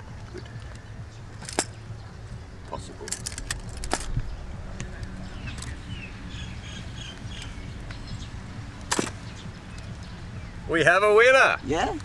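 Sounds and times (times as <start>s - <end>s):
plastic sunglasses clattering: 3.0s - 4.2s
bird chirps: 4.2s - 10.7s.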